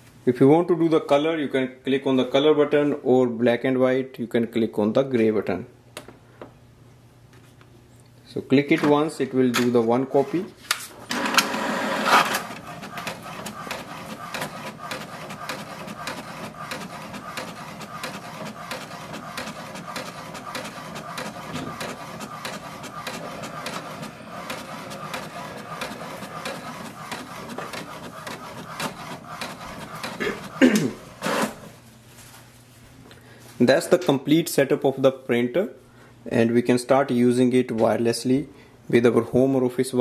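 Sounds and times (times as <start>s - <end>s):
printer motor whirring: 11.1s - 31.7s
printer rapid clicking: 11.1s - 31.7s.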